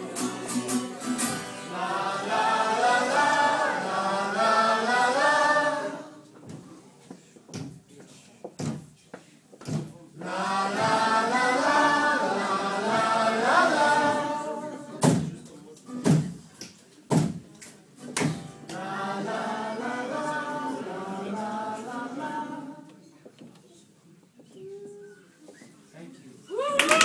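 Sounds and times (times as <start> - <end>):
group of voices singing: 0.0 - 6.3, 10.2 - 15.2, 18.6 - 23.1.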